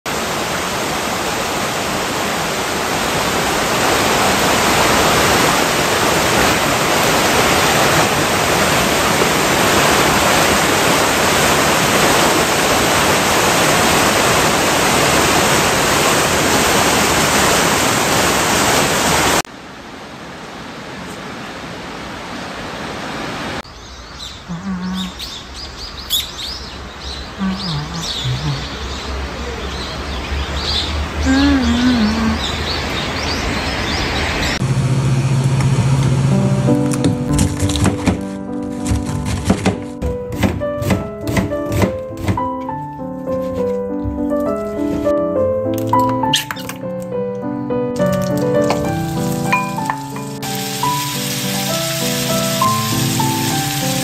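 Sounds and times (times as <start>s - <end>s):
stream water rushing over weir: 0.1s - 23.6s, 26.8s - 34.6s, 48.0s - 54.0s
small birds chirping: 23.6s - 34.6s, 46.2s - 47.0s.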